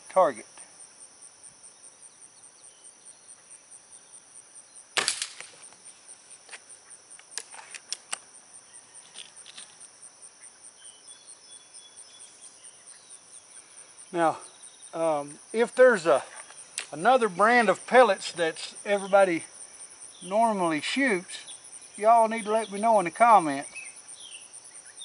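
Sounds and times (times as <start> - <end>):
insects chirring: 0.0 - 25.0
air rifle shot: 5.0 - 5.6.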